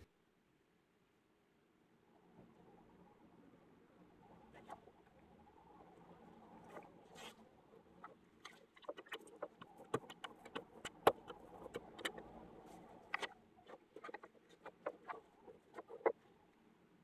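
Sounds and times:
rubber roller in sticky ink crackling: 8.0 - 16.2.

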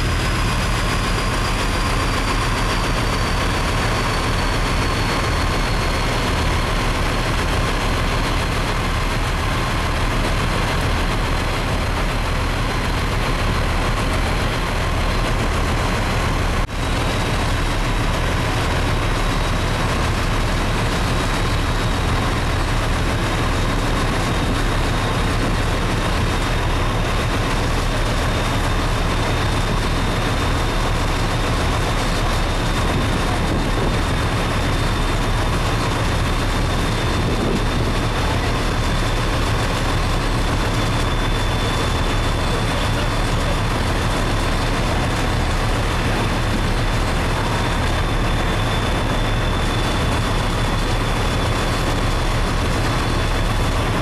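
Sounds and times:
wind and water rushing: 0.0 - 42.5
ship engine rumbling: 0.0 - 54.0.

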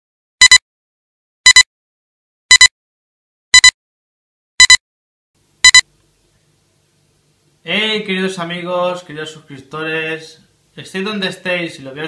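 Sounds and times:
high-pitched double beeps: 2.5 - 2.7, 3.6 - 3.8, 4.6 - 4.8, 5.6 - 5.8.

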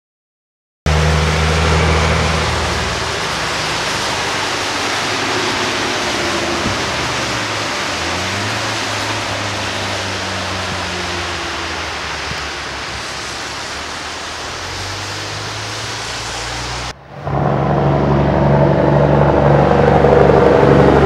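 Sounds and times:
truck diesel engine: 0.9 - 21.0
tyres hissing on wet road: 0.9 - 21.0.

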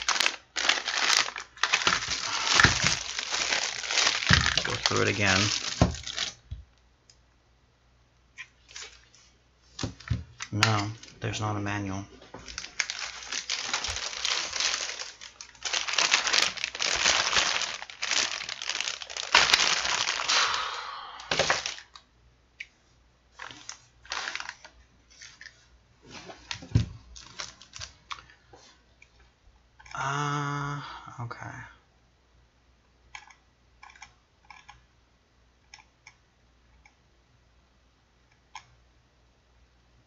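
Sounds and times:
packaging crackling and rustling: 0.0 - 6.5, 8.7 - 9.2, 12.4 - 20.6, 21.3 - 22.0, 23.4 - 25.6, 26.2 - 28.3.

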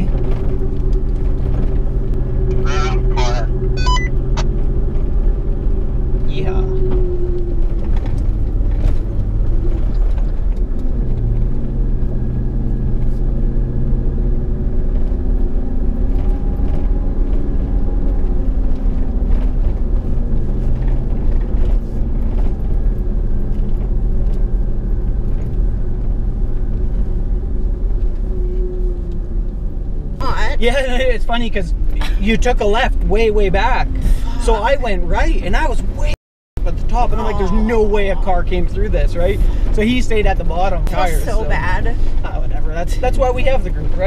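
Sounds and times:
tyres rumbling on gravel: 0.0 - 13.0, 30.1 - 44.0
engine running at low speed: 0.0 - 44.0.

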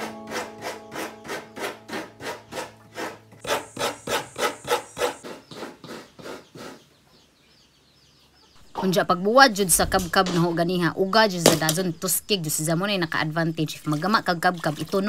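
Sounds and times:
coconut scraped on grater: 0.3 - 6.8.

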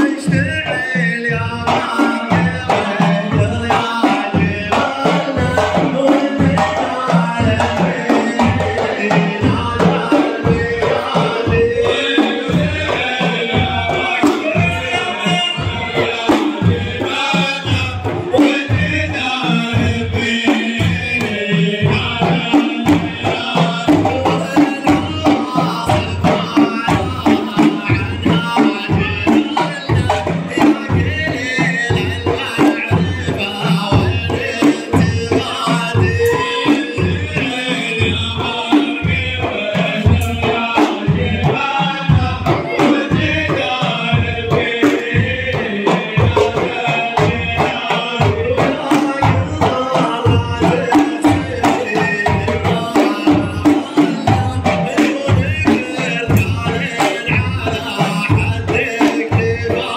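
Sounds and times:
frame drums beating: 0.0 - 59.9
men singing in chorus: 0.0 - 59.9.

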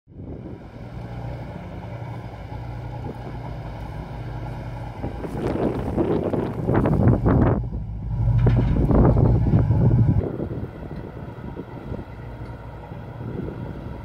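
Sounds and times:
boat engine humming: 0.1 - 14.0
wind on microphone: 4.8 - 12.2.

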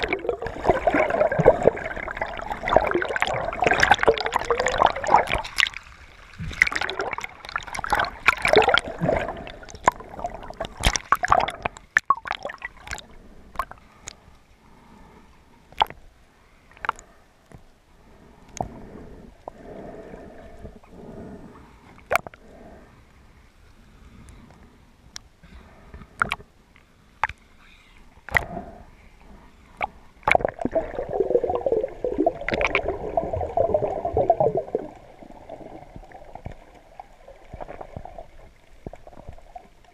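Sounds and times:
rushing bubbling water: 0.0 - 13.8, 30.2 - 39.9
water splashing and sloshing: 0.0 - 15.1, 25.8 - 39.9.

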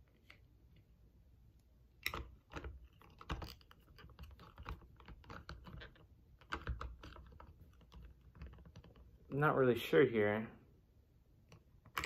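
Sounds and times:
small plastic parts clicking: 2.0 - 9.2.

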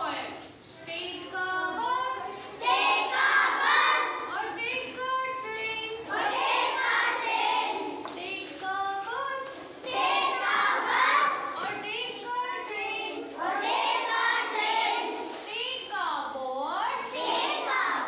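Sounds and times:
children singing in unison: 2.6 - 4.3, 6.1 - 8.0, 9.8 - 11.7, 13.3 - 15.3, 17.1 - 18.0.

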